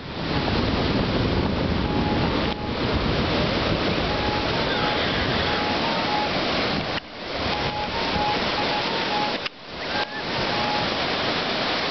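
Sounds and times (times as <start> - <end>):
ocean surf breaking: 0.0 - 11.9.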